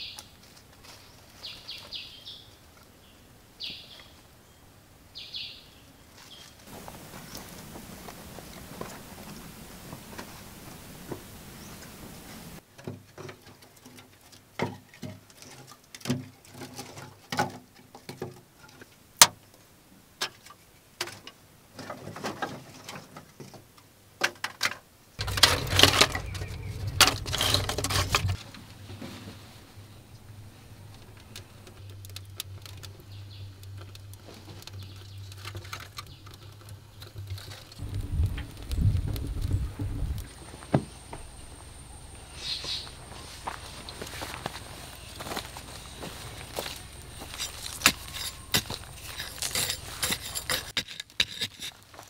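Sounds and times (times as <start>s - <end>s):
steady hiss: 2.5s - 12.6s, 25.1s - 50.6s
hand tool scraping earth: 25.2s - 29.9s, 42.4s - 52.0s.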